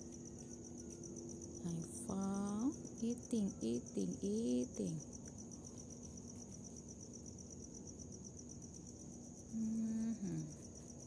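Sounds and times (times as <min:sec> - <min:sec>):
crickets chirping: 0:00.0 - 0:11.0
person humming: 0:01.7 - 0:05.0, 0:09.5 - 0:10.6.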